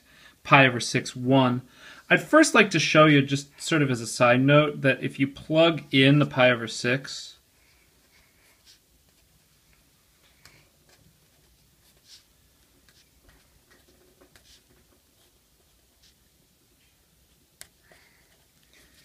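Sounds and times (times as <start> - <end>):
marker scratching on paper: 8.5 - 9.3, 10.9 - 16.3.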